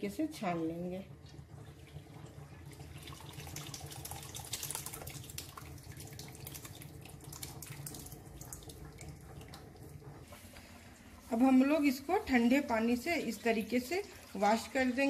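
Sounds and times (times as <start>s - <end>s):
liquid splashing and trickling: 1.2s - 11.4s, 13.2s - 15.0s.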